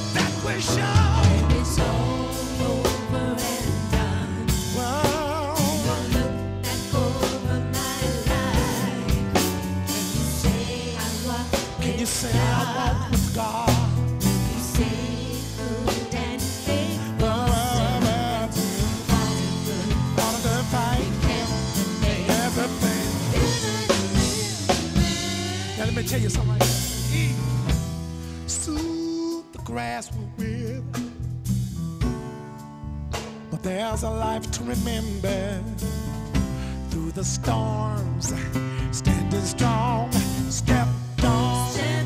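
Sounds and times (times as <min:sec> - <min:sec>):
gospel vocal group singing: 0:00.0 - 0:27.8, 0:36.6 - 0:42.0
drum kit beat: 0:00.0 - 0:42.0
live band: 0:00.0 - 0:42.0.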